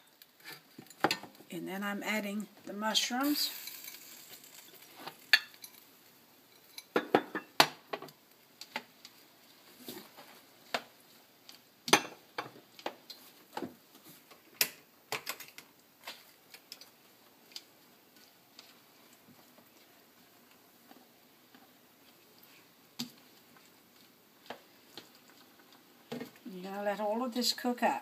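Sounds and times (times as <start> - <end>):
metal tongs clinking on frying pan: 3.4 - 5.9.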